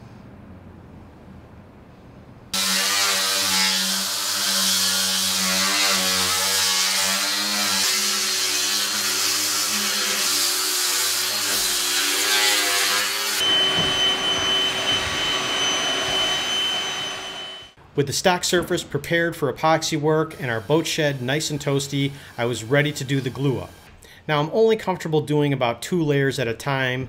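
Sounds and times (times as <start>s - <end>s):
angle grinder sanding wood: 2.6s - 17.7s, 20.2s - 23.8s
orbital sander whining: 2.6s - 17.8s.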